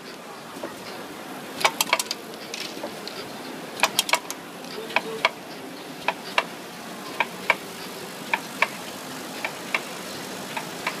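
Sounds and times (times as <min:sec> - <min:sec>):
machine running noise: 0:00.0 - 0:11.0
machine clicking in pairs: 0:01.6 - 0:02.7, 0:03.8 - 0:05.4.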